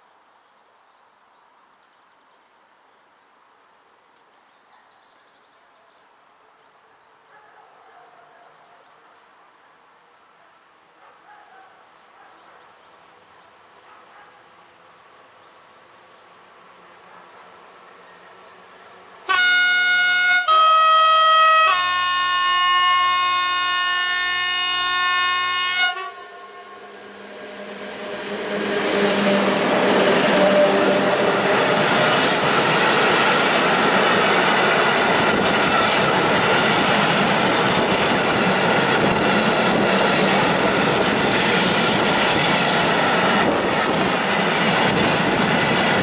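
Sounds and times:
heavy train rumbling past: 17.6 - 46.0
locomotive air horn blasts: 19.3 - 29.7.

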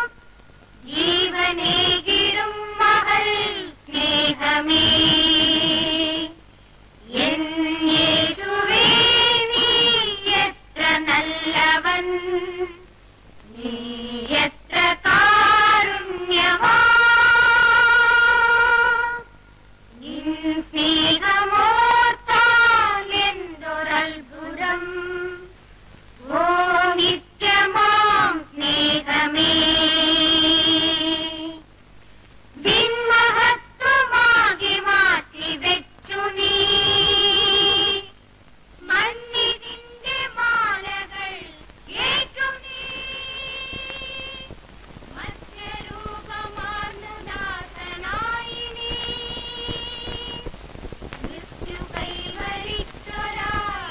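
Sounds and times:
woman singing a hymn: 0.8 - 6.4, 7.0 - 25.6, 26.2 - 31.6, 32.6 - 38.2, 38.8 - 50.6, 51.2 - 53.9.

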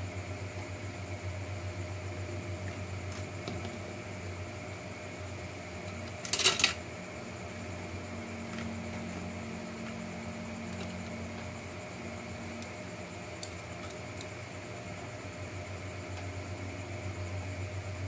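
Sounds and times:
steady low hum: 0.0 - 18.0
plastic parts clattering: 6.1 - 6.8.

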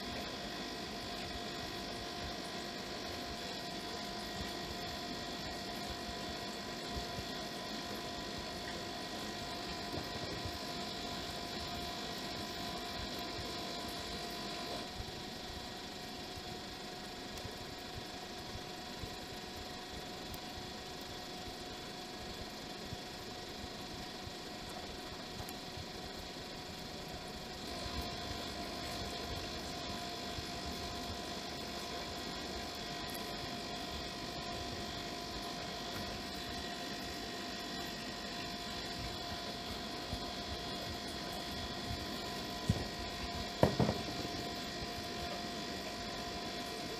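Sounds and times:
electrical hum with hiss: 0.0 - 46.9
faint constant tones: 0.0 - 46.9
faint small ticks: 17.3 - 21.1, 24.6 - 25.6.

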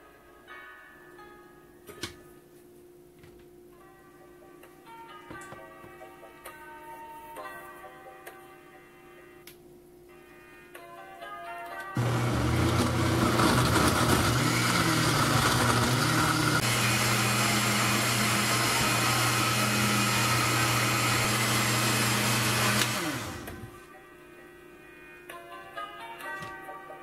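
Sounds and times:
blender running: 12.0 - 23.8.

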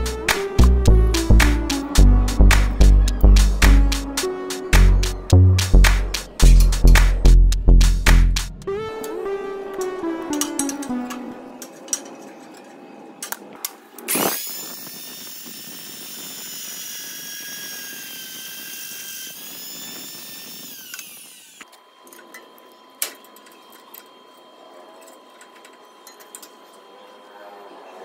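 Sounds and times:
drill press whining: 14.3 - 22.5.

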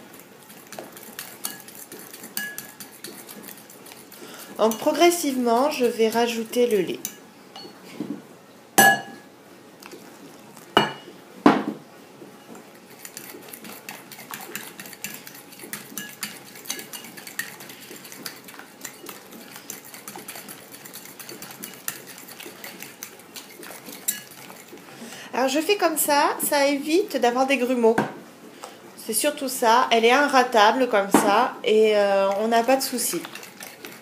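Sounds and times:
fork beating batter in bowl: 0.0 - 7.7, 12.6 - 25.6, 31.0 - 34.0
sharp clinks on bowl: 8.8 - 9.2.

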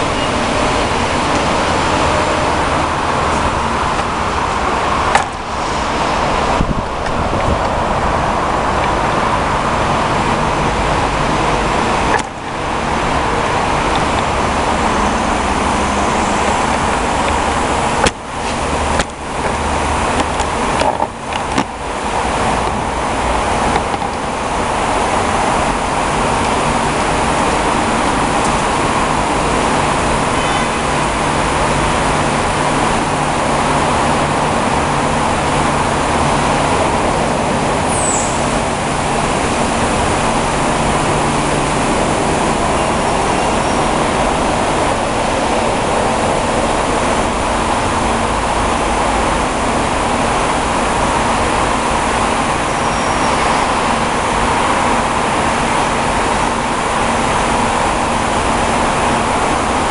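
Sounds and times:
high squeal: 37.8 - 38.7, 42.7 - 44.2, 52.6 - 53.8.

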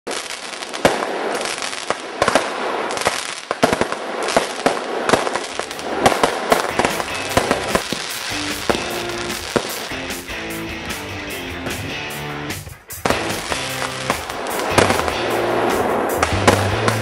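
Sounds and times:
fireworks banging and crackling: 0.1 - 11.9, 12.6 - 17.0
guitar rock music: 6.6 - 17.0.

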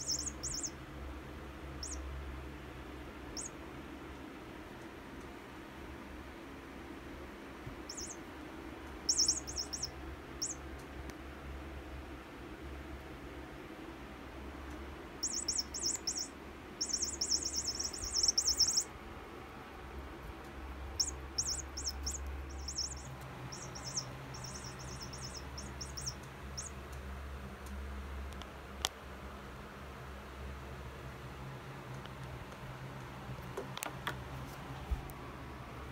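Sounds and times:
toy mouse chirping trills: 0.0 - 0.8, 1.8 - 2.1, 3.3 - 3.6, 7.9 - 8.2, 9.0 - 10.6, 15.2 - 18.9, 21.0 - 26.8.

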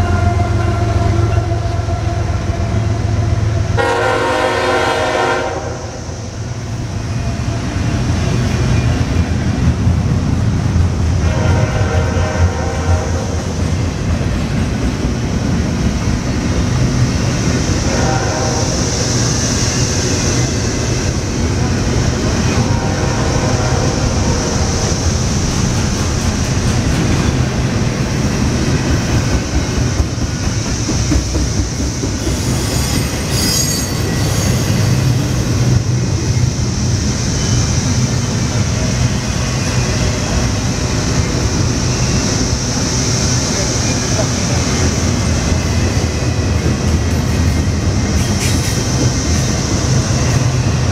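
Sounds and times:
freight train rumbling past: 0.0 - 50.9
high-pitched wheel squeal: 32.4 - 35.2.

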